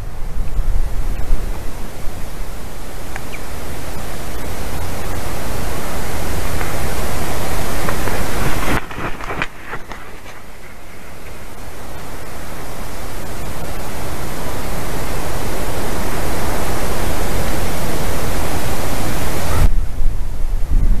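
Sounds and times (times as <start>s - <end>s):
wind buffeting microphone: 0.0s - 21.0s
faint clicks: 3.1s - 3.5s, 6.4s - 12.1s.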